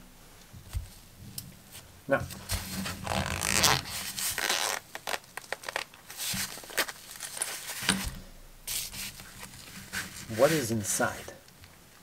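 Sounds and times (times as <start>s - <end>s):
pouch knocking and rustling: 2.4s - 8.2s
zipper pulled open: 2.8s - 5.8s.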